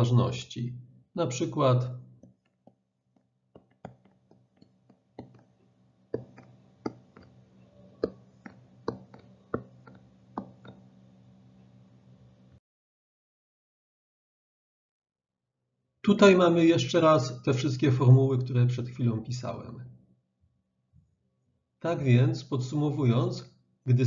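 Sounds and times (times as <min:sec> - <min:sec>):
stylus clicks and taps: 0:03.6 - 0:07.4, 0:08.0 - 0:10.8
stylus scraping: 0:03.6 - 0:10.8
faint electrical hum: 0:06.4 - 0:12.6.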